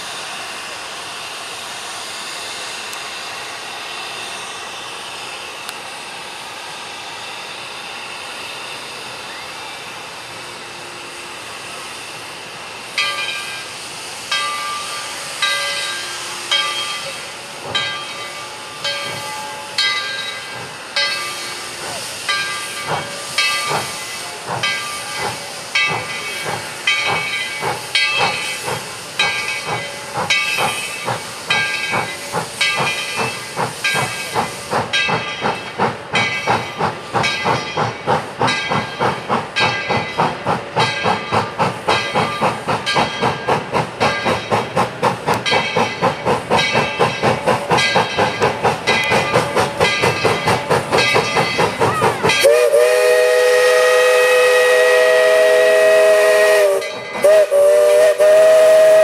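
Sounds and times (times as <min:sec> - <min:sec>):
steam hissing from cylinder cocks: 0:00.0 - 0:59.0
steam locomotive exhaust chuffs: 0:00.0 - 0:59.0
steam whistle blast: 0:52.2 - 0:59.0.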